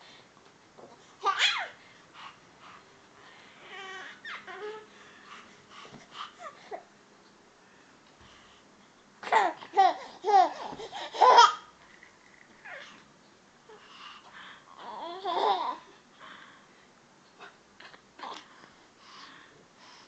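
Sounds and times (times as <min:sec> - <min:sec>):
baby laughing and babbling: 0:01.2 - 0:01.8, 0:09.2 - 0:11.8, 0:14.7 - 0:15.9.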